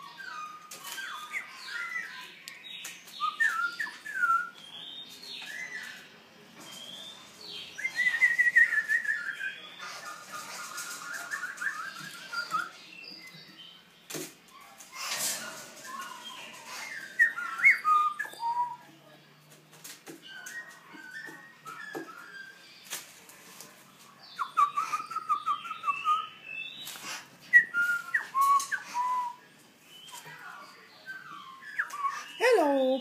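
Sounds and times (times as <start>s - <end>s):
songbird whistling and chirping: 0.0s - 13.8s, 15.8s - 19.2s, 20.2s - 22.9s, 24.2s - 33.0s.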